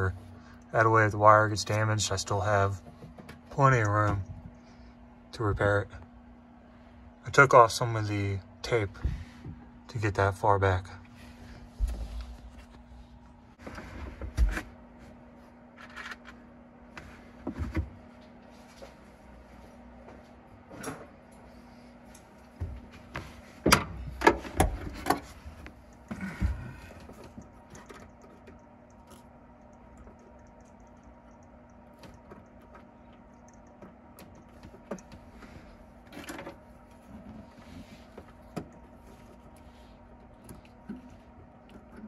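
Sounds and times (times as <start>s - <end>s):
steady low hum: 0.0s - 42.0s
knocks and clicks of handling wires: 2.7s - 4.6s, 22.1s - 39.6s.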